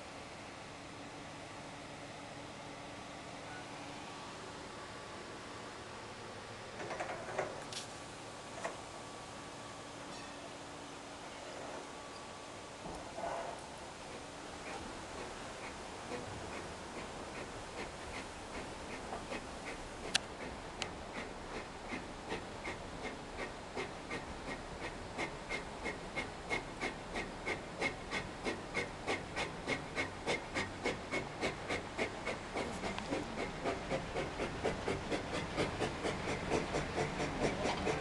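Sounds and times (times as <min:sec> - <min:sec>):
steam engine chuffing: 0:13.5 - 0:38.0.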